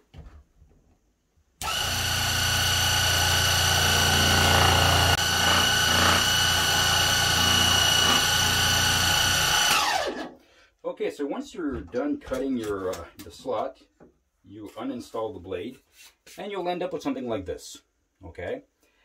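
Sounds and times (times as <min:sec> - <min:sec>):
scroll saw cutting wood: 0:01.6 - 0:10.3.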